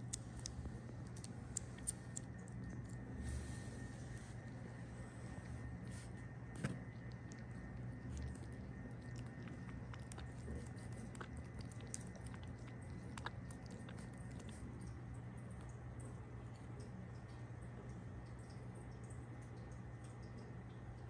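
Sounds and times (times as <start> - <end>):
kitten suckling wet clicks: 0.0 - 3.1, 6.8 - 16.1
steady low hum: 0.0 - 21.0.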